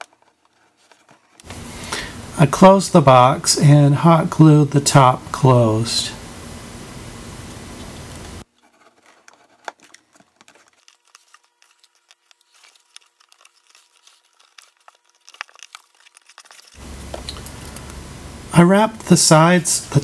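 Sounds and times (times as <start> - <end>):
steady hiss: 1.4 - 8.4, 16.8 - 20.0
cardboard box and paper crinkling: 8.6 - 16.8.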